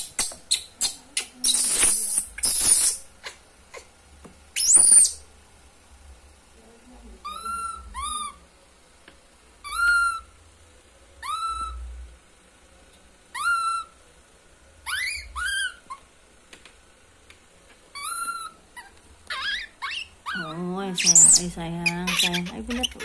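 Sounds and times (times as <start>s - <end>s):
baby monkey distress calls: 0.0s - 3.9s, 4.6s - 5.2s, 7.2s - 8.4s, 9.6s - 10.4s, 11.2s - 11.8s, 13.3s - 14.0s, 14.8s - 16.1s, 17.9s - 23.0s.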